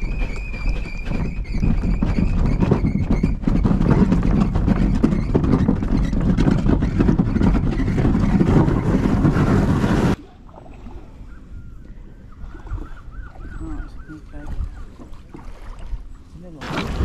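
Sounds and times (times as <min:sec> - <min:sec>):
stones crunching and rattling: 0:00.0 - 0:10.2.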